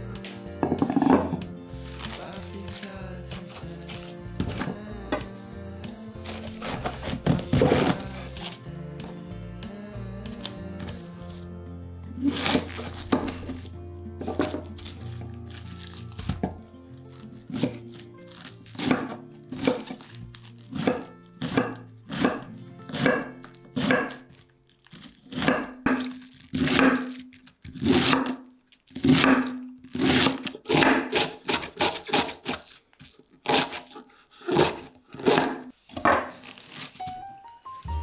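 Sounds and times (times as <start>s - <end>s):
knife shredding cabbage on board: 6.2s - 8.5s, 12.2s - 13.7s, 17.2s - 24.4s, 25.0s - 35.7s.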